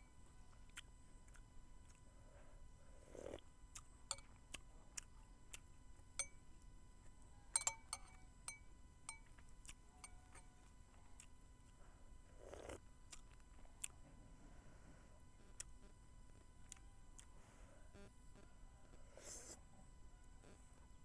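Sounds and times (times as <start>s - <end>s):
spoon clinking on ceramic bowl: 7.6s - 9.3s
person sipping from spoon: 12.4s - 12.8s, 19.2s - 19.6s.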